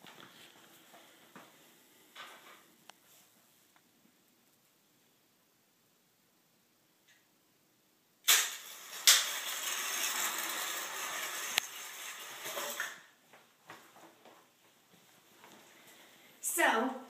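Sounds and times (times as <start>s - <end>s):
toy car rattling and rustling: 8.3s - 13.1s.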